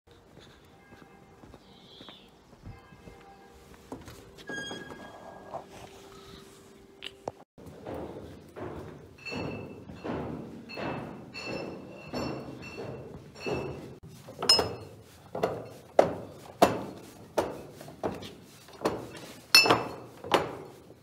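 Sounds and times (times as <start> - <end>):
footsteps on cellar floor: 0.1 - 6.0, 7.6 - 21.0
glass bottles knocking in wooden rack: 8.7 - 17.6, 18.7 - 20.6.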